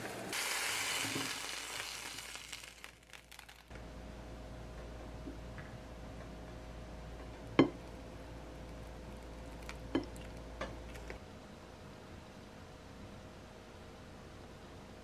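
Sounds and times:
steady hum: 3.7s - 15.0s.

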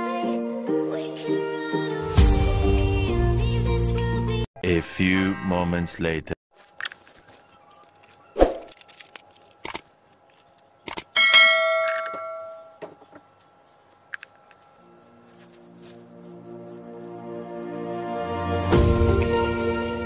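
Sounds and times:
bright bell ding: 11.2s - 12.8s.

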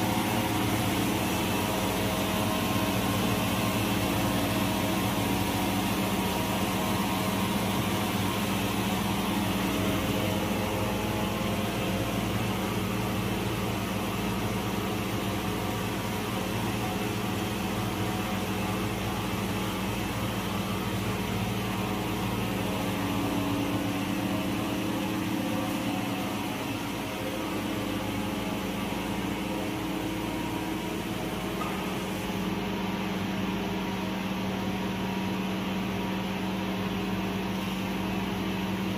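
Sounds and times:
knitting machine humming: 0.0s - 33.7s.

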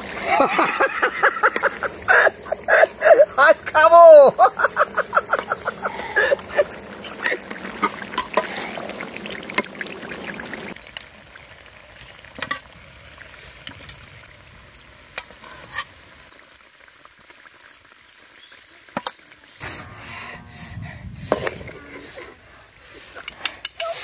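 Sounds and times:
chicken sizzling in oil: 0.0s - 3.8s, 4.4s - 23.2s
metal spatula scraping pan: 19.6s - 24.0s.

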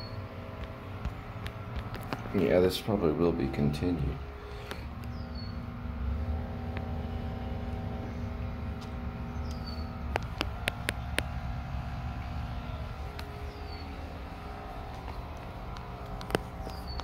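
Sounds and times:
low outdoor rumble: 0.0s - 17.0s
sharp clicks: 8.8s - 11.4s.

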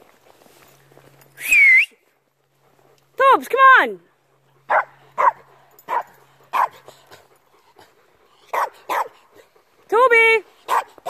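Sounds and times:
dog barking: 4.7s - 6.8s, 8.5s - 9.2s, 10.7s - 11.0s.

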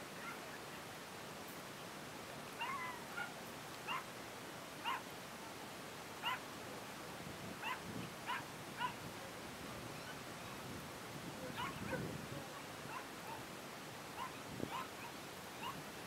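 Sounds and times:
dog yipping: 2.6s - 3.3s, 4.8s - 5.0s, 7.6s - 9.0s, 11.5s - 12.0s, 14.2s - 15.8s.

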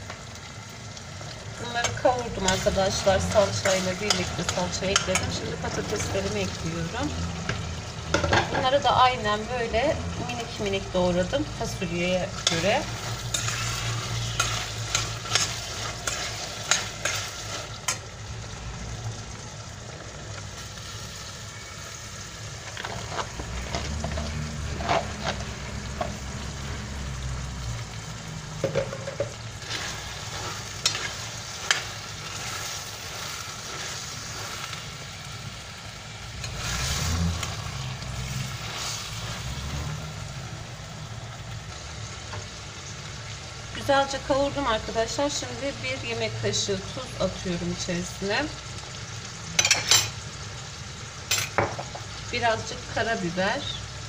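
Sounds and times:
food sizzling in a pot: 0.0s - 54.0s
metal spoon scraping a pot: 12.4s - 18.0s, 29.6s - 34.7s.

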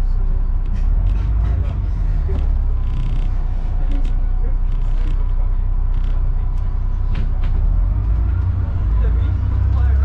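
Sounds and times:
bus engine rumble: 0.0s - 10.0s
bodywork creaks and rattles: 0.6s - 6.2s.

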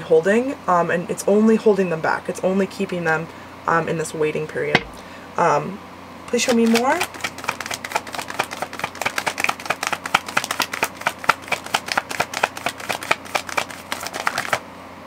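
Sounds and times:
cards being shuffled: 6.3s - 14.6s.

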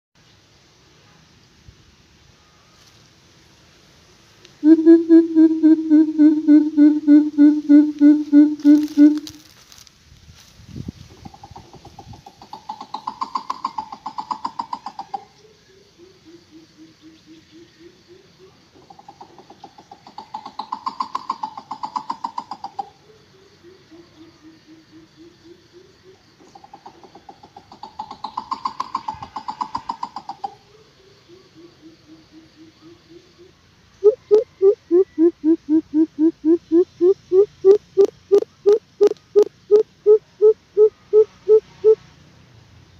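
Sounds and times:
bird deep hollow hoots: 4.6s - 9.4s, 11.2s - 15.3s, 16.0s - 42.0s
bird pulsed notes: 4.6s - 9.5s.

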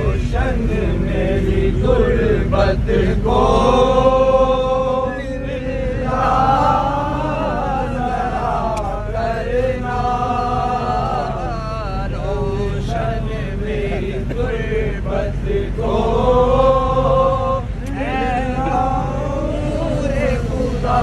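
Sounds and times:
male voices chanting: 0.0s - 21.0s
steady low rumble: 0.0s - 21.0s.

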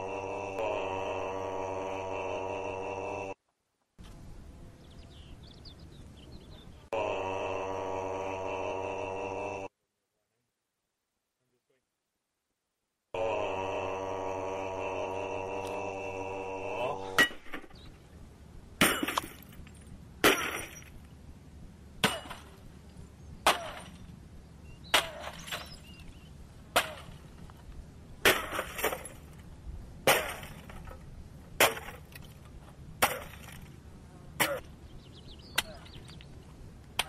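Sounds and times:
glass breaking and clinking: 18.8s - 20.9s.

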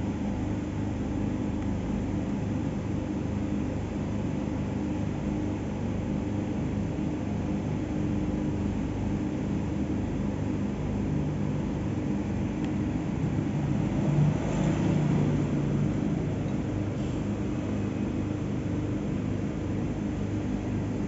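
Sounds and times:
faint hum: 0.0s - 21.0s
low background rumble: 6.4s - 21.0s.

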